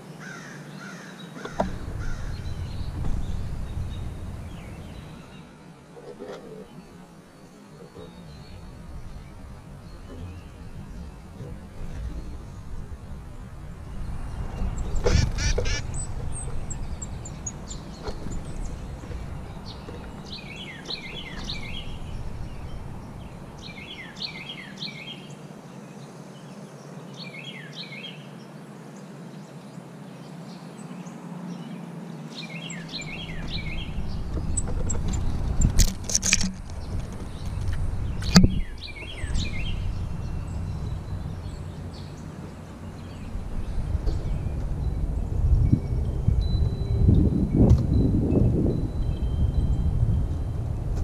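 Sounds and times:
small songbird calling: 0:00.0 - 0:25.4, 0:30.6 - 0:45.8
sharp knocks: 0:01.4 - 0:04.4
low rumble: 0:01.5 - 0:24.2, 0:33.0 - 0:51.0.

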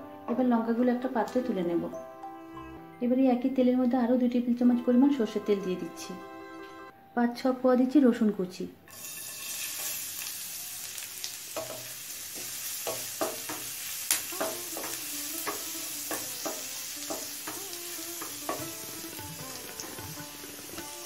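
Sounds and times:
garlic sizzling in oil: 0:08.9 - 0:21.0.

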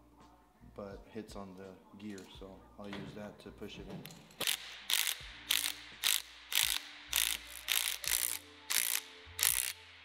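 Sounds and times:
cordless power ratchet bursts: 0:04.4 - 0:09.8.

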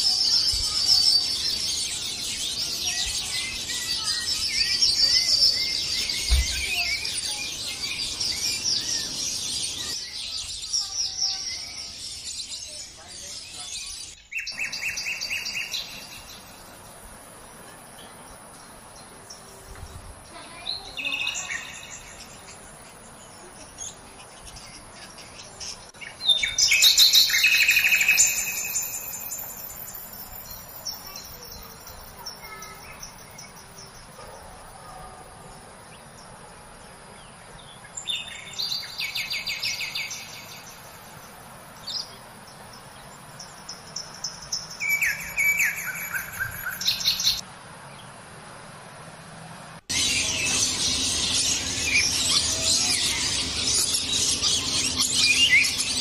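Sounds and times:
lorikeets screeching: 0:00.0 - 0:17.2, 0:26.2 - 0:35.1, 0:49.9 - 0:56.0.

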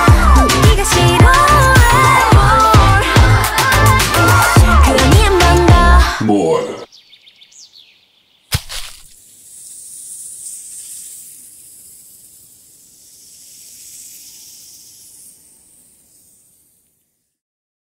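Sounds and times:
high airy hiss: 0:09.1 - 0:17.4
faint high chirps: 0:09.2 - 0:17.4.

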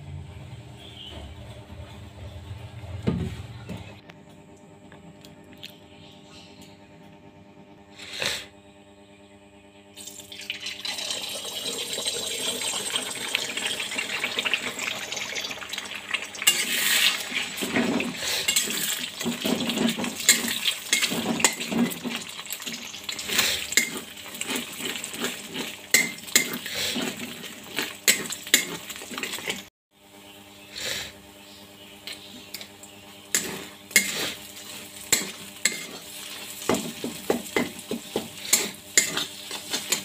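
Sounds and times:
eggs sizzling in hot oil: 0:10.0 - 0:29.7, 0:33.3 - 0:40.0
spatula scraping metal pan: 0:16.4 - 0:22.1, 0:23.1 - 0:29.7, 0:33.3 - 0:40.0.

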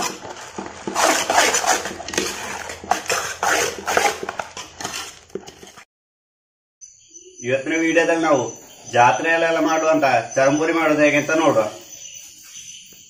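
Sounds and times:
spoon stirring in steel bowl: 0:00.0 - 0:05.8.

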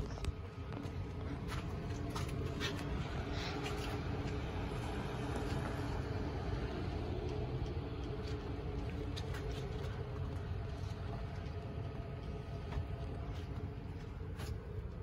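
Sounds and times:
faint hum: 0:00.0 - 0:15.0
low rumble and hiss: 0:00.0 - 0:15.0.

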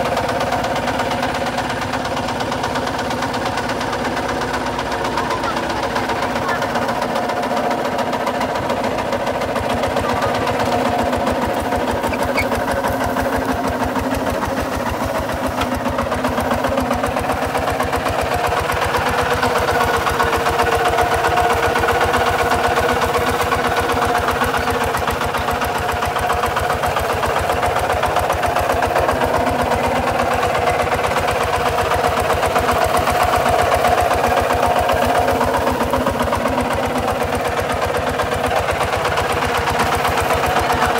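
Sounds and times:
diesel engine chugging under load: 0:00.0 - 0:40.9.

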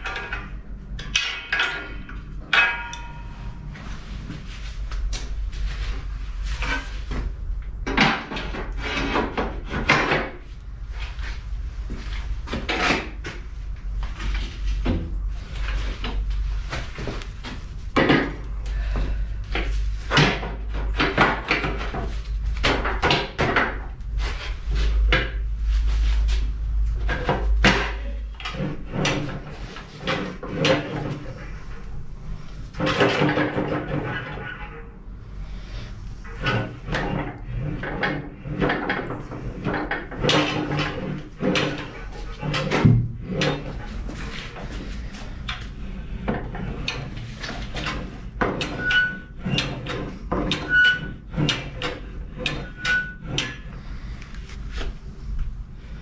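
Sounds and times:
metal parts knocking and clunking: 0:00.0 - 0:03.7, 0:05.1 - 0:10.5, 0:11.9 - 0:25.5, 0:26.9 - 0:31.5, 0:32.7 - 0:34.9, 0:36.2 - 0:53.8
metal scraping: 0:00.0 - 0:55.0
steady low hum: 0:00.0 - 0:56.0.

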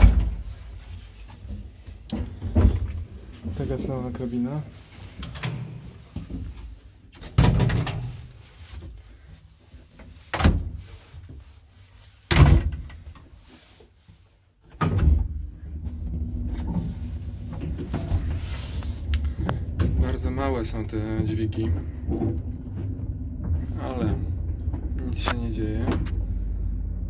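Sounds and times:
lift doors banging shut: 0:00.0 - 0:00.5, 0:07.3 - 0:08.1.

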